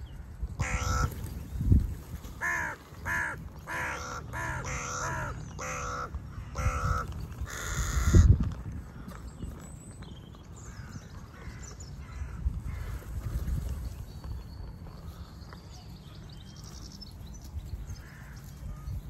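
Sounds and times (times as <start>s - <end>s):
crows cawing: 0.6s - 1.2s, 2.3s - 9.2s.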